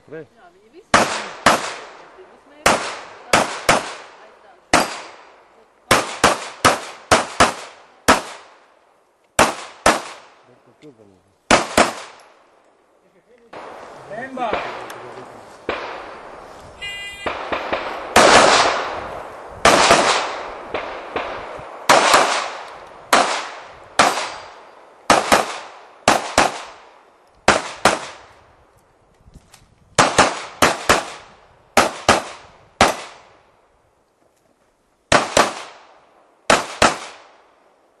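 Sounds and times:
rapid gunfire: 0.9s - 1.9s, 2.6s - 4.1s, 5.9s - 8.5s, 11.5s - 12.2s, 17.3s - 18.9s, 19.6s - 24.4s, 25.1s - 26.8s, 27.5s - 28.2s, 30.0s - 31.2s, 31.8s - 33.2s, 35.1s - 35.8s, 36.5s - 37.2s.

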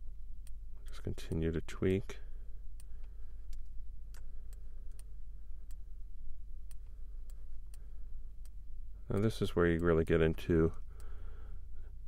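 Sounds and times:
steady low hum: 0.0s - 12.0s
computer mouse clicking: 2.8s - 5.8s, 6.6s - 11.1s.

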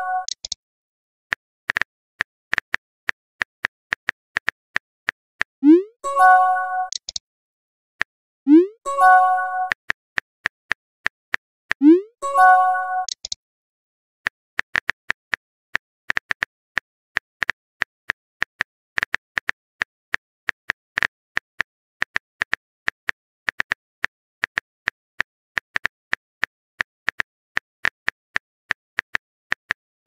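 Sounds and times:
phone keyboard key clicks: 6.9s - 7.2s.

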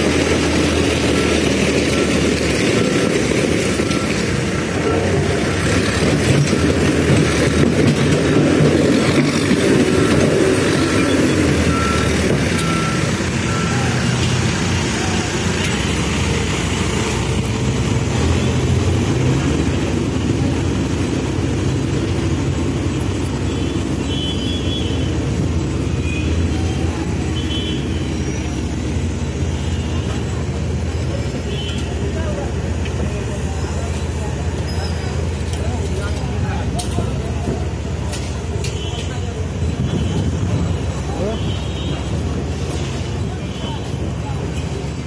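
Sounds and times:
diesel engine running: 0.0s - 45.0s
reversing alarm beeping: 9.4s - 14.4s.

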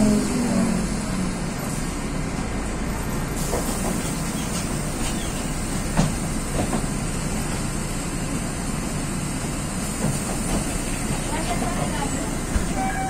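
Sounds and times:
bus engine rumble: 0.0s - 13.0s.

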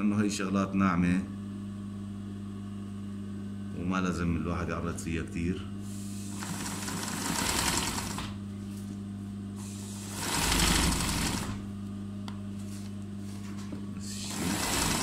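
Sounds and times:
steady low hum: 0.0s - 15.0s
sewing machine stitching: 6.3s - 8.4s, 10.0s - 11.6s, 14.2s - 15.0s.

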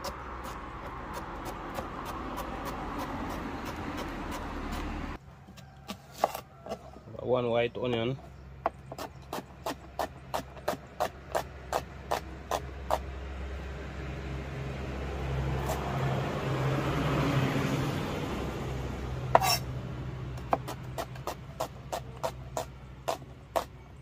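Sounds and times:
vehicle passing: 0.0s - 5.2s, 11.5s - 23.1s
knife chopping on cutting board: 19.3s - 19.6s, 20.4s - 23.7s.

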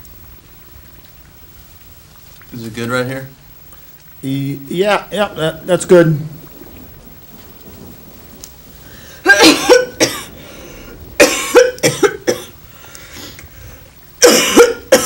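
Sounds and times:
woman coughing: 9.2s - 10.3s, 11.2s - 12.5s, 14.2s - 15.0s.

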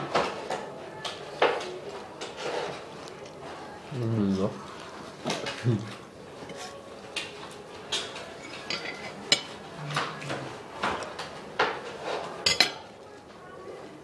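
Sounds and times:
dishes and cutlery clinking: 6.4s - 13.2s.

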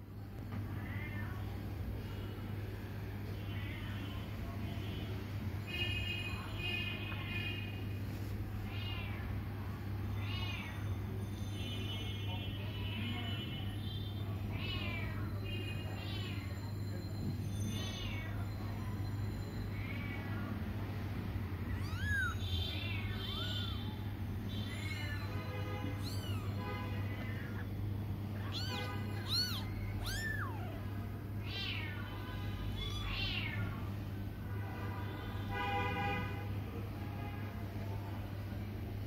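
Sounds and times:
kittens mewing: 21.6s - 34.0s.

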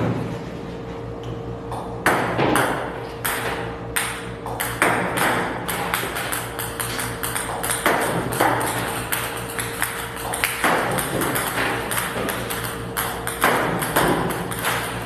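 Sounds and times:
table tennis balls clicking: 2.6s - 15.0s.

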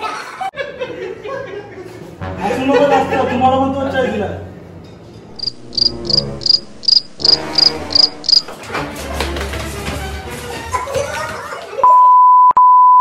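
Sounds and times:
cricket chirps: 5.4s - 8.4s.

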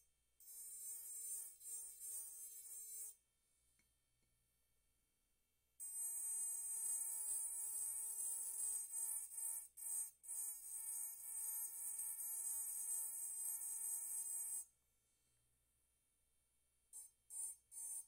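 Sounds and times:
engraving tool high-pitched whine: 0.4s - 3.2s, 5.8s - 14.6s, 17.4s - 18.0s.

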